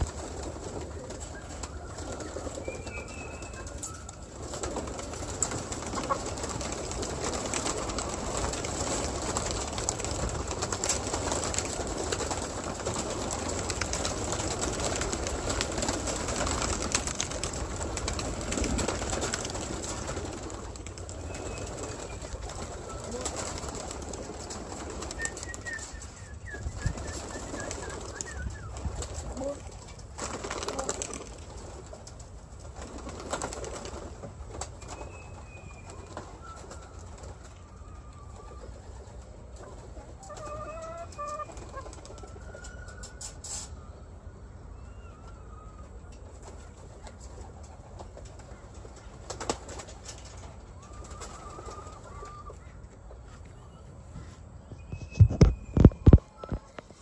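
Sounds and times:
pigeon wings flapping: 0:00.0 - 0:37.6, 0:46.2 - 0:52.4.

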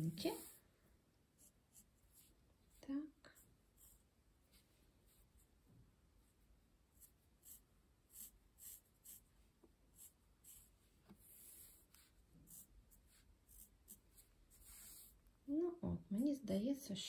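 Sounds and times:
felt-tip pen scratching on fabric: 0:06.9 - 0:09.3.

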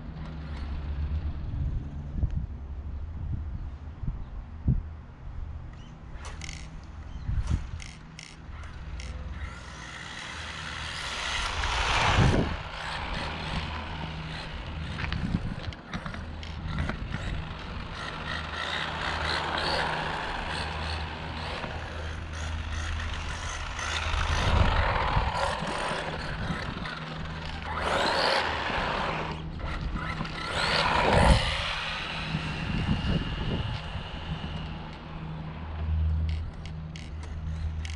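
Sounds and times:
electric motor whining: 0:07.8 - 0:37.9.

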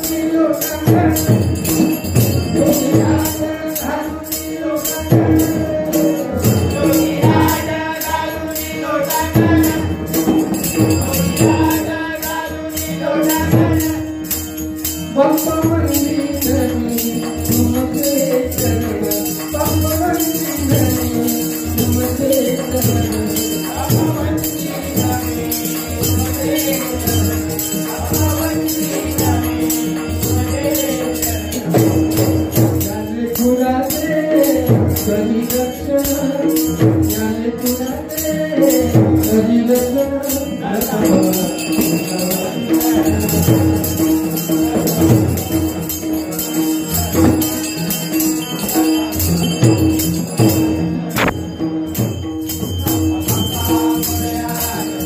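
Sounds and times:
hand cymbals jingling: 0:00.0 - 0:55.0
person singing devotional melody: 0:00.0 - 0:55.0
drum strokes: 0:41.6 - 0:55.0.

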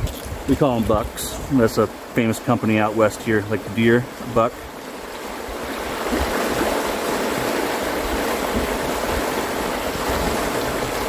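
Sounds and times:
wind buffeting microphone: 0:00.0 - 0:01.8
river rapids rushing: 0:00.5 - 0:11.0.

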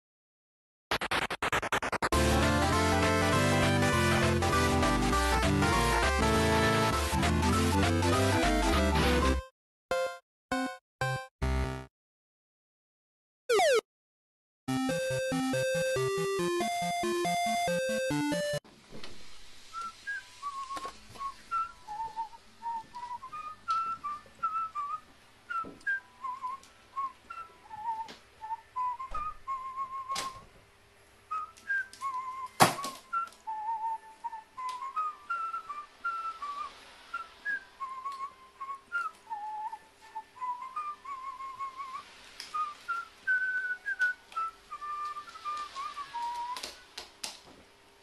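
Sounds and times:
person whistling a tune: 0:19.7 - 0:30.4, 0:31.3 - 0:46.9.

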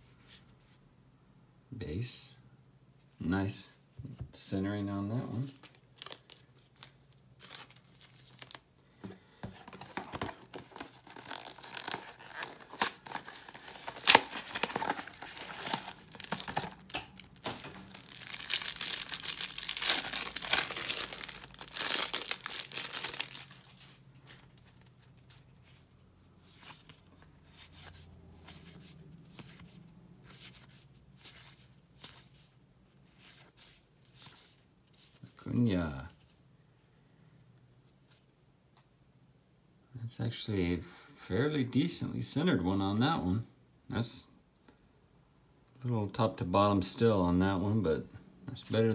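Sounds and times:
plastic wrapper crinkling and tearing: 0:05.6 - 0:08.6, 0:09.6 - 0:24.0
cards being thumbed through: 0:13.8 - 0:23.4.

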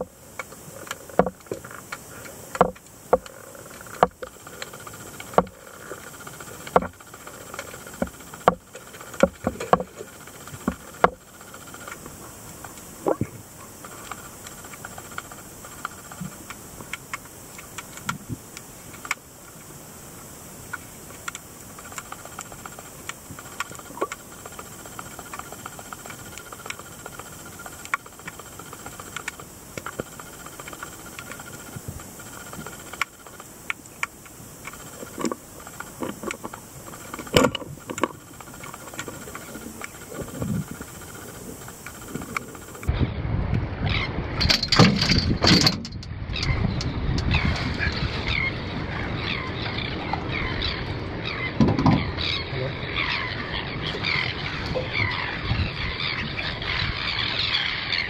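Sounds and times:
small clicks and crackles: 0:00.0 - 0:42.9
underwater hiss: 0:00.0 - 0:42.9.

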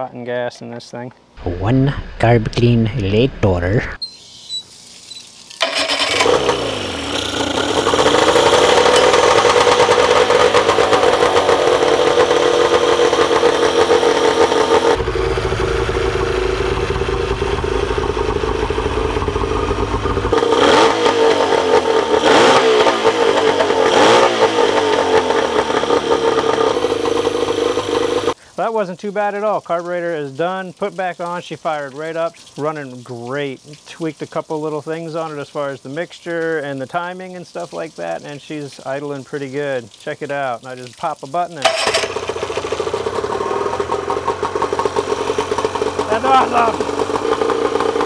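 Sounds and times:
outboard engine starting and running: 0:05.6 - 0:28.4, 0:41.6 - 0:48.0.

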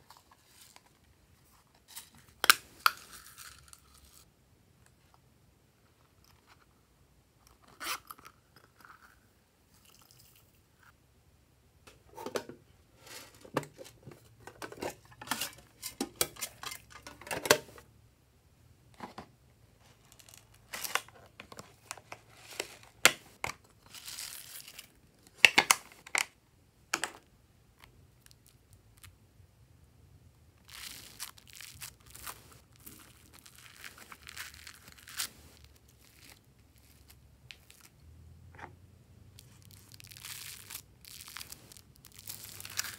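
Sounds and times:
slime crackly crunching: 0:30.6 - 0:37.9, 0:39.4 - 0:42.9.

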